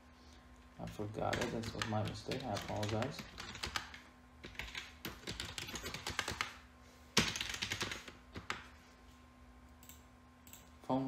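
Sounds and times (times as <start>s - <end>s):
computer keyboard typing: 0.8s - 6.6s, 7.2s - 8.7s, 9.8s - 10.7s.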